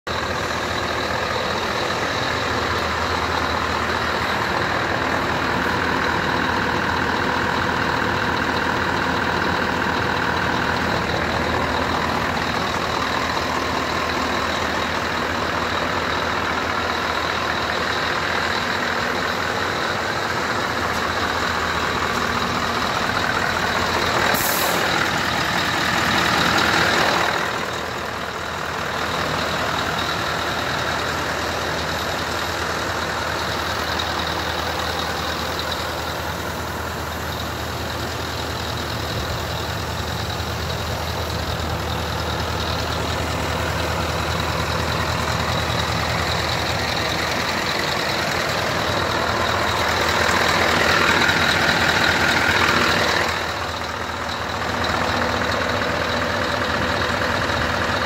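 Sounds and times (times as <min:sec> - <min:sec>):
diesel engine idling: 0:00.0 - 0:58.0
sharp hiss of air: 0:24.3 - 0:24.8.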